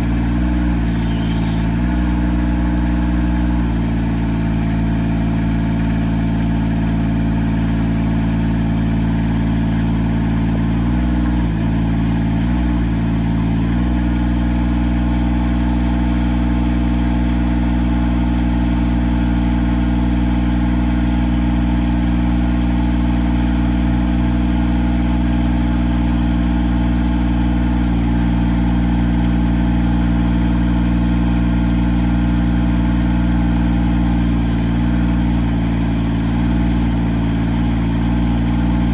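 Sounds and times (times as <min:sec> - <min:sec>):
lift engine running: 0:00.6 - 0:02.2.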